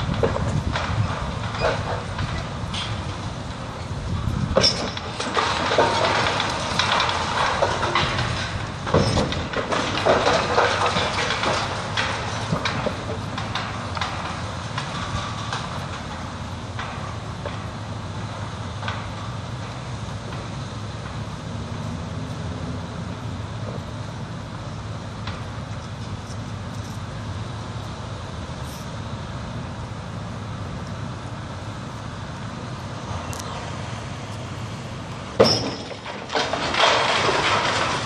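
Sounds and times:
diesel crane engine rumbling: 0.0 - 38.0
bricks and rubble crashing: 4.1 - 17.6, 35.3 - 38.0.

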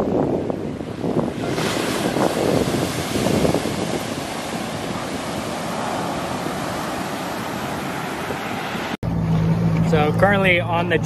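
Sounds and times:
ocean surf breaking on beach: 0.0 - 9.0
wind buffeting microphone: 0.0 - 9.0.

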